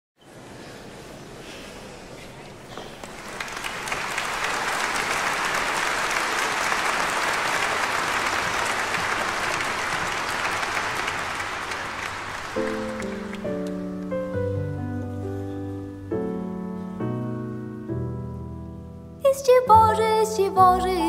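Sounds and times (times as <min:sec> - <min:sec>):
audience applauding: 0:02.4 - 0:14.6.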